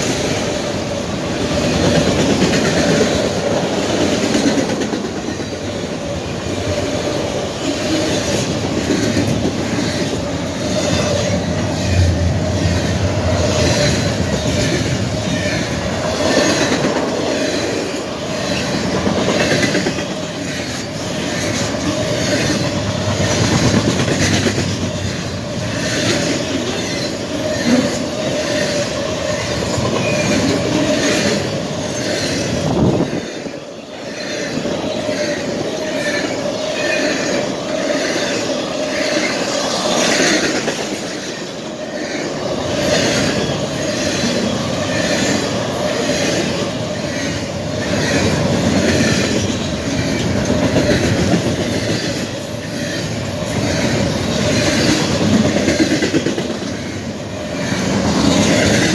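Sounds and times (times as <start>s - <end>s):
train wheels rumbling on rail: 0.0s - 58.9s.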